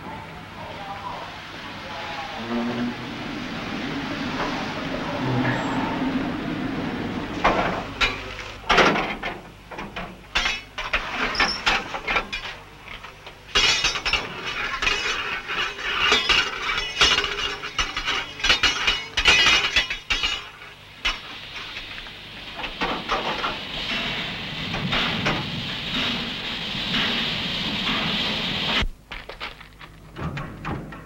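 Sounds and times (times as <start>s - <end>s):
metal tools clanking and scraping: 7.4s - 20.5s.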